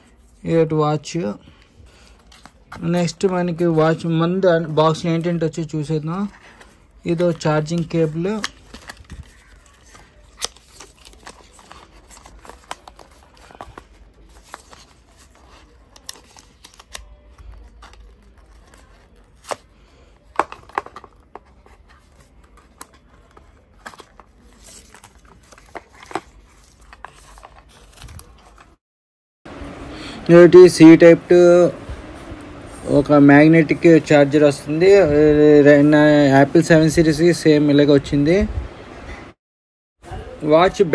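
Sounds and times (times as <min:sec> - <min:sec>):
paper packaging rustling: 0:00.0 - 0:28.8.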